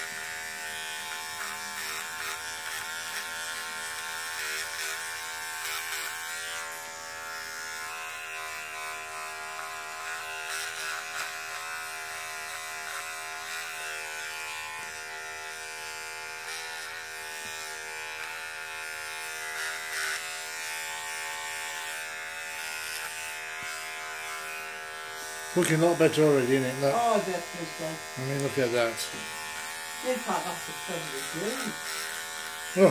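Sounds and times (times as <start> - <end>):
electric beard trimmer buzzing: 0.0 - 32.9.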